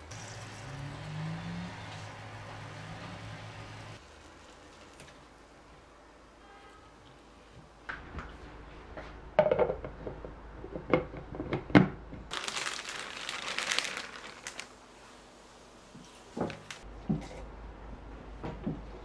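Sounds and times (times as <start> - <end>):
rustling crinkling noise: 12.3 - 15.3, 15.9 - 16.9.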